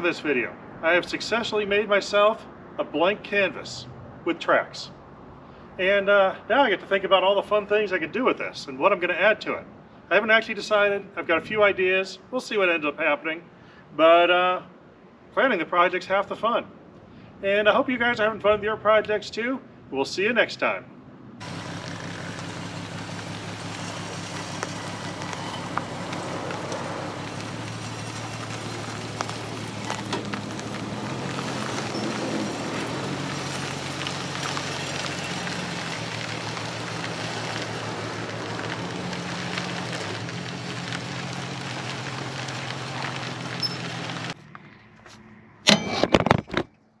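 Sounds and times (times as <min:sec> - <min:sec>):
vehicle engine running: 0:21.4 - 0:44.4
tyres crunching over gravel: 0:21.4 - 0:44.5.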